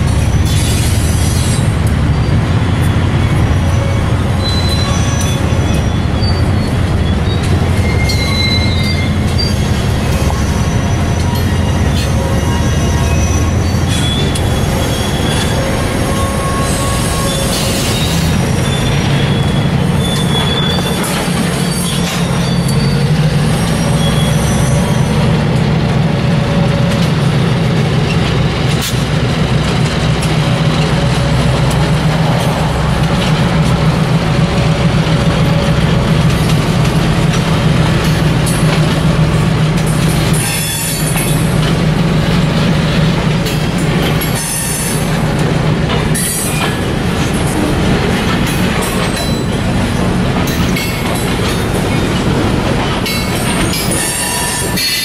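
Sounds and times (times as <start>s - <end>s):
train wheel squeal: 0.0s - 25.4s, 34.8s - 55.0s
locomotive engine drone: 0.0s - 55.0s
rumble of rolling train cars: 0.0s - 55.0s.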